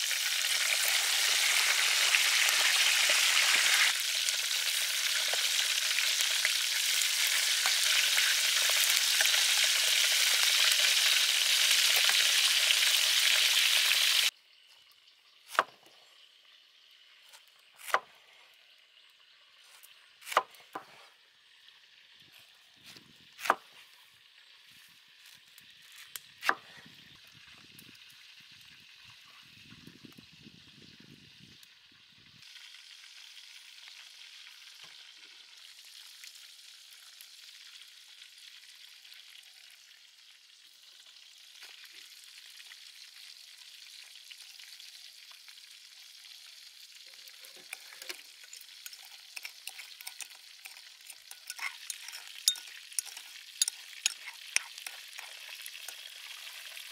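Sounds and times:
spoon scraping ceramic bowl: 0:47.5 - 0:56.0.

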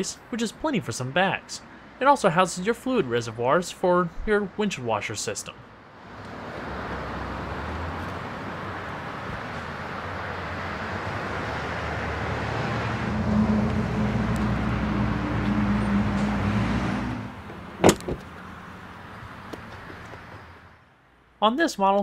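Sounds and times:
traffic noise: 0:00.0 - 0:22.0
vehicle motor hum: 0:06.0 - 0:20.7
car trunk lid thudding shut: 0:17.8 - 0:18.3.

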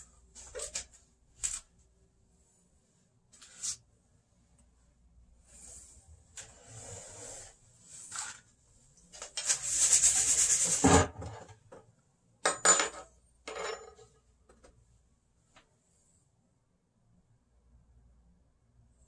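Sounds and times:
rubbing and scraping: 0:09.2 - 0:11.2.

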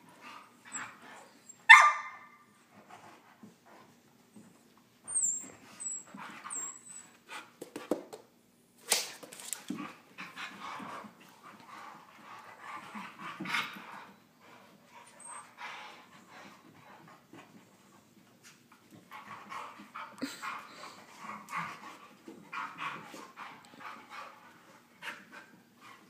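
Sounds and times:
dogs yipping and barking: 0:01.6 - 0:02.4.

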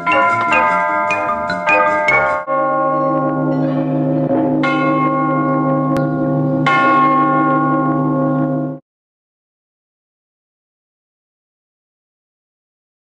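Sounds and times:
church bells ringing: 0:00.0 - 0:08.8.

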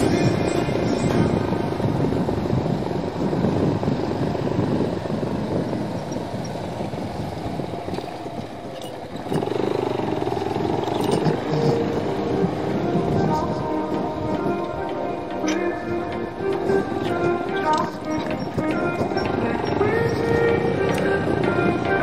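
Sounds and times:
motorcycle engine running: 0:00.0 - 0:15.0
wind rumbling on microphone: 0:00.0 - 0:22.0.

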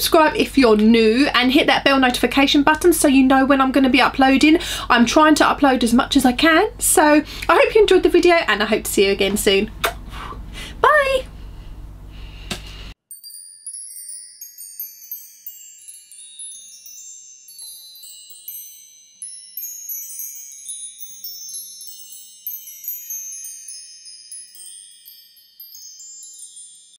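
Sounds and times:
tinkling chimes: 0:13.1 - 0:27.0.

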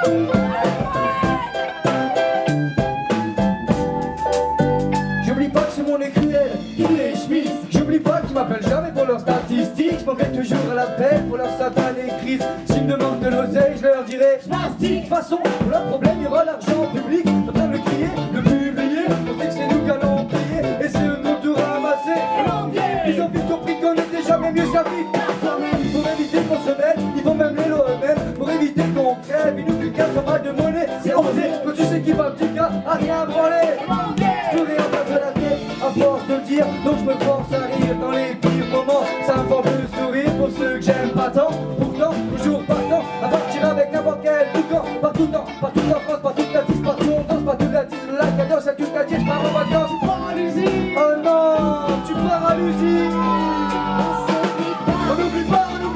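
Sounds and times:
electric guitar: 0:00.0 - 0:09.5, 0:10.2 - 0:55.9
accordion: 0:00.0 - 0:55.9
bass: 0:00.0 - 0:55.9
drum kit beat: 0:00.0 - 0:55.9
voices singing: 0:17.6 - 0:27.9, 0:28.5 - 0:44.1, 0:48.8 - 0:55.9.

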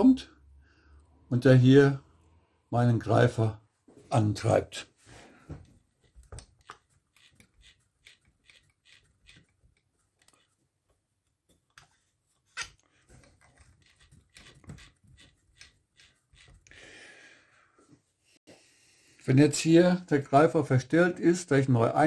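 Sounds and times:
sewing machine clicks and knocks: 0:06.1 - 0:10.4.

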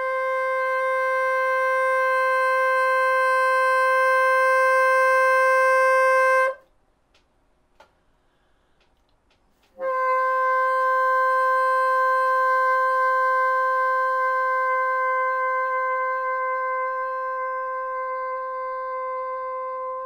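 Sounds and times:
bassoon long steady tone: 0:00.0 - 0:06.6, 0:09.7 - 0:20.0.

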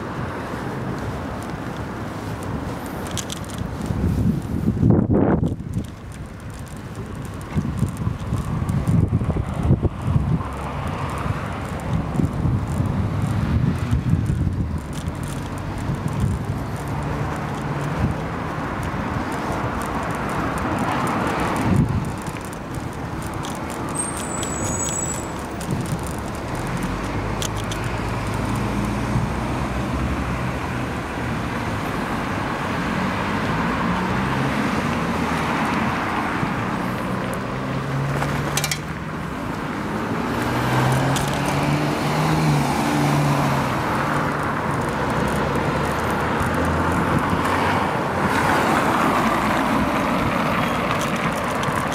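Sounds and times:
bicycle riding rushing noise: 0:00.0 - 0:51.9
car engines running: 0:00.0 - 0:51.9.

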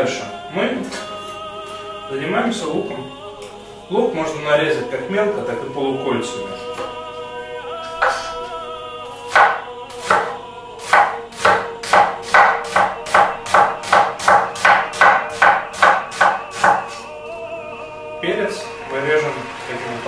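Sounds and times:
knife slicing onion on wooden board: 0:09.2 - 0:16.9.

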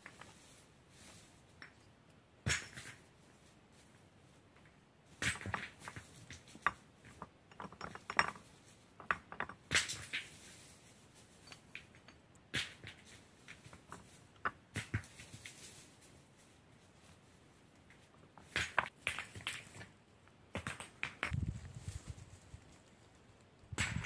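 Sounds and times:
stones clacking and scraping: 0:04.6 - 0:15.8, 0:17.8 - 0:21.6, 0:22.7 - 0:24.0.

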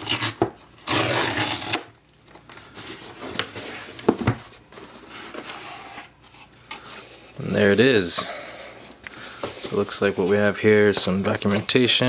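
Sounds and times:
cardboard tear strip ripping: 0:00.0 - 0:01.9.

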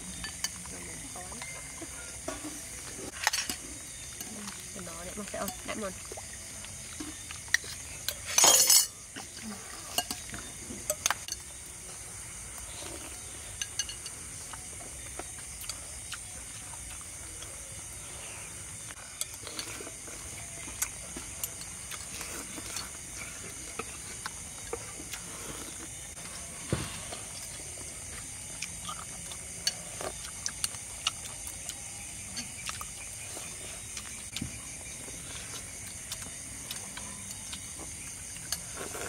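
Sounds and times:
dishes and utensils clinking: 0:00.1 - 0:04.6, 0:07.0 - 0:11.6, 0:13.5 - 0:14.2.

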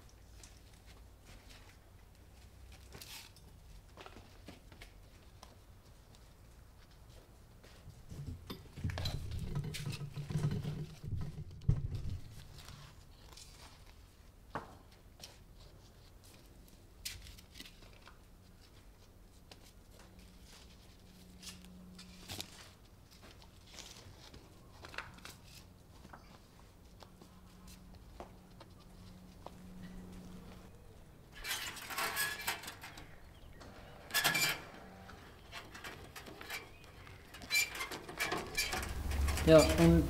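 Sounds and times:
plastic plant pots knocking: 0:08.2 - 0:12.7.

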